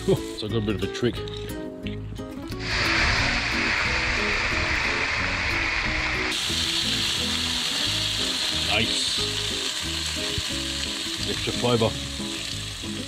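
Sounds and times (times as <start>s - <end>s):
fish sizzling on grill: 2.6s - 13.0s.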